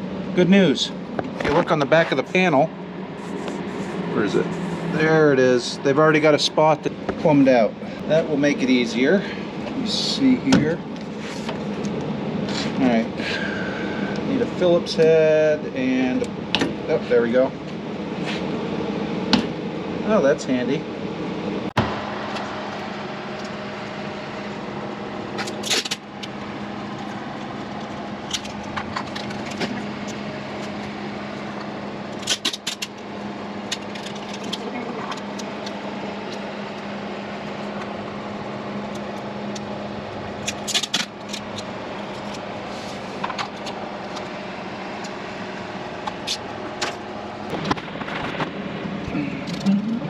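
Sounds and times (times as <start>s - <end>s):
steady low hum: 0.0s - 50.0s
tools and plastic parts clattering: 25.4s - 26.4s, 28.2s - 30.8s, 32.1s - 33.0s, 33.6s - 35.8s, 40.4s - 42.4s.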